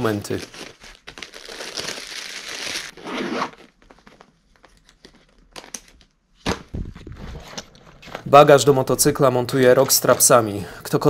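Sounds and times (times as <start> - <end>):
backpack zipper: 3.0 - 3.6.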